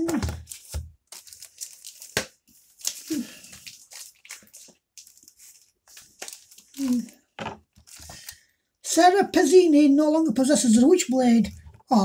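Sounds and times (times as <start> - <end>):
plastic bags crinkling: 0.0 - 8.4.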